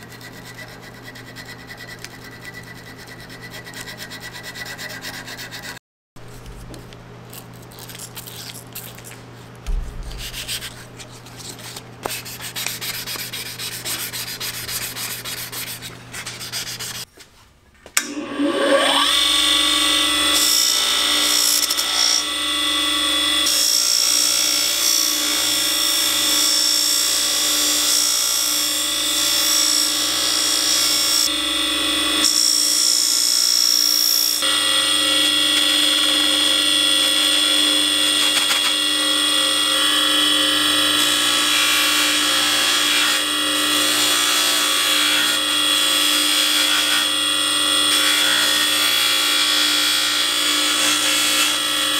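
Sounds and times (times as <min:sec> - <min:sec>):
steel rubbing on sandpaper: 0:00.1 - 0:05.8, 0:10.1 - 0:17.1
bench buffer motor whine: 0:18.0 - 0:51.9.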